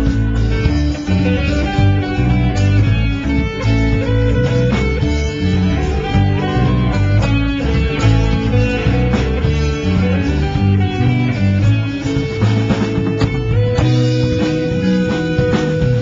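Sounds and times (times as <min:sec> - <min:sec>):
bass guitar: 0:00.0 - 0:16.0
drums: 0:00.0 - 0:16.0
electric guitar: 0:00.0 - 0:16.0.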